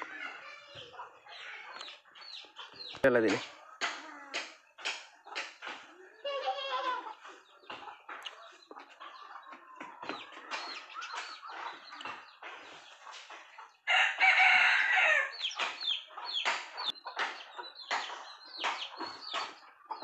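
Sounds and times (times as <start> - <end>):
chickens clucking: 0.0 - 20.0
rooster crowing: 13.9 - 15.3.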